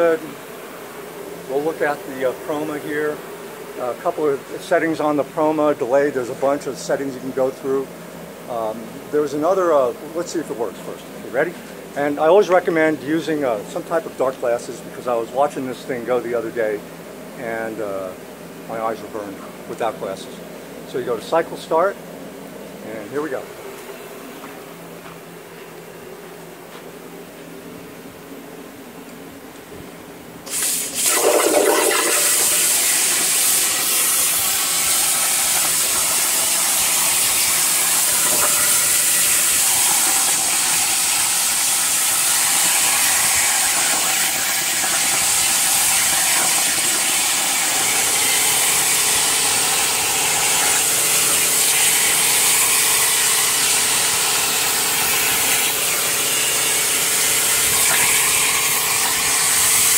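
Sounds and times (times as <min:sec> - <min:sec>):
plasma torch arc striking: 0:30.4 - 0:53.9, 0:54.8 - 0:59.9
plasma torch cutting steel hiss: 0:30.4 - 0:59.9.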